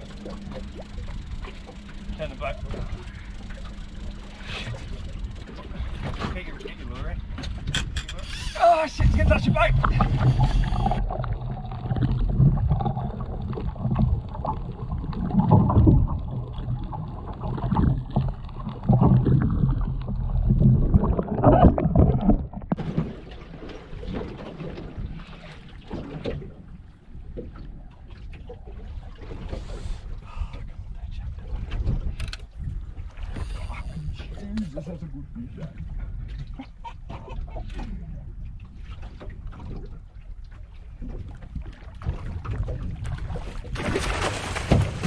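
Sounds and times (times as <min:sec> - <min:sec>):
low engine drone: 0:00.0 - 0:22.8
water splashing: 0:00.0 - 0:29.8, 0:35.0 - 0:45.0
water crackle: 0:00.0 - 0:30.6
muffled rushing water underwater: 0:00.0 - 0:45.0
wind: 0:00.0 - 0:45.0.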